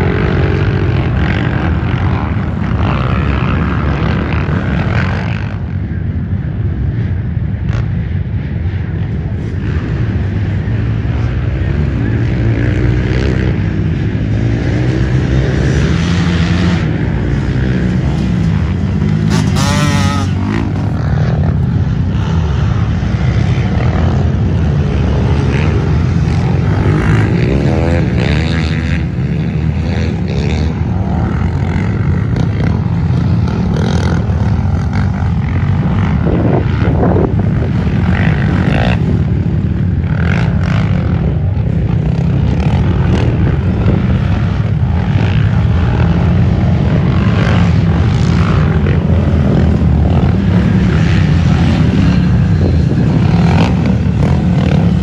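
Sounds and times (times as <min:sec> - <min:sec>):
dirt bike engines revving: 0:00.0 - 0:55.0.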